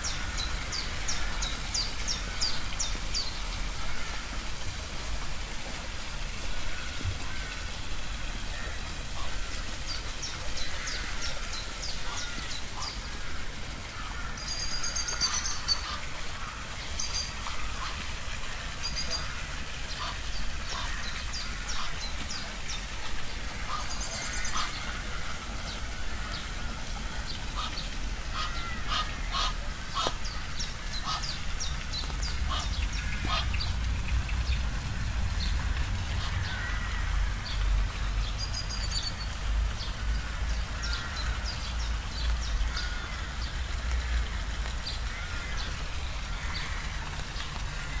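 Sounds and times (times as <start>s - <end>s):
flock of birds calling: 8.6s - 18.1s, 18.8s - 34.6s, 35.4s - 38.7s, 39.8s - 48.0s
low rumble: 32.2s - 38.0s.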